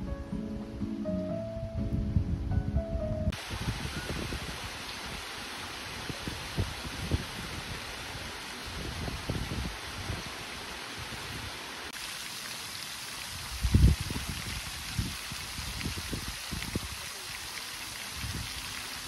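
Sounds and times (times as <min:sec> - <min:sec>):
low rumbles: 0:00.0 - 0:03.4
water rushing down small cascade: 0:03.3 - 0:19.0
fountain spray splashing: 0:03.4 - 0:19.0.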